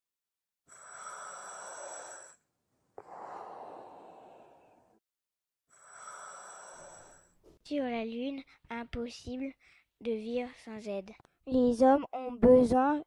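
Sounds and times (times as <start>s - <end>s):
slow breathing: 0.7s - 5.0s, 5.7s - 7.4s.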